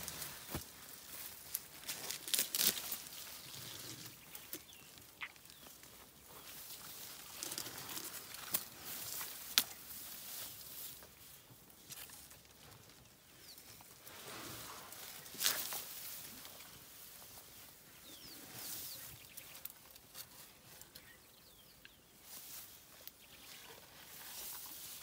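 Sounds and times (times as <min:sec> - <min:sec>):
leaves rustling: 0:00.0 - 0:13.0, 0:13.6 - 0:20.8, 0:22.2 - 0:25.0
twigs snapping: 0:01.5 - 0:03.1.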